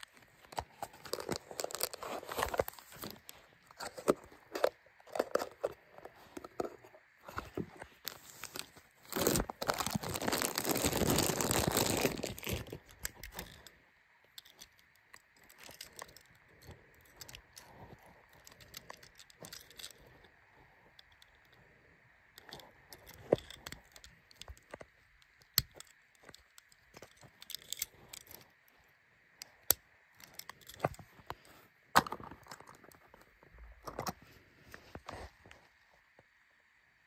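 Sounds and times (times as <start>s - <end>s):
plastic bag crinkling: 0.0s - 5.7s, 6.3s - 13.7s.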